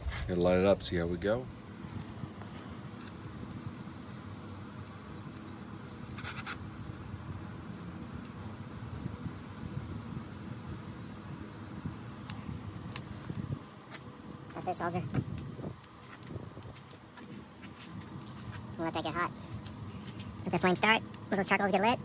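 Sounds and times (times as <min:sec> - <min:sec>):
short rustling or scraping: 0:00.0 - 0:00.4
steady low hum: 0:00.0 - 0:22.0.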